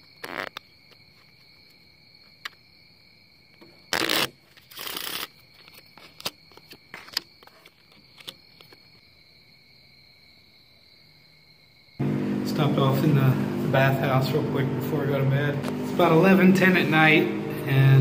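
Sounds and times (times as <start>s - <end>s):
crickets chirring: 0.0s - 18.0s
cards riffle shuffling: 3.9s - 8.8s.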